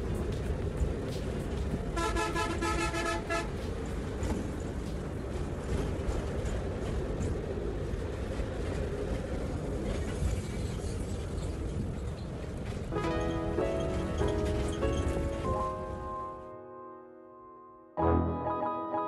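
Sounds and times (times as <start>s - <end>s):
bus engine and road noise: 0.0s - 16.2s
vehicle horn toot: 2.0s - 3.5s.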